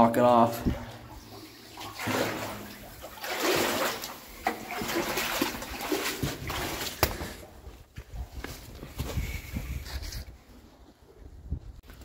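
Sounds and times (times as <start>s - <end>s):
boots splashing through shallow water: 1.7s - 7.4s.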